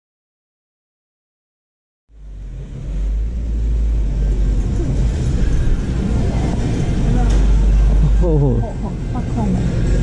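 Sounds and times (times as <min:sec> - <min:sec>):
road traffic rumble: 0:02.1 - 0:10.0.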